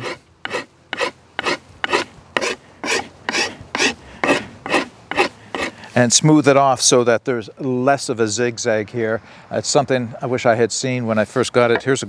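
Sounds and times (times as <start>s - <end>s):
rasp filing wood: 0.0s - 5.8s.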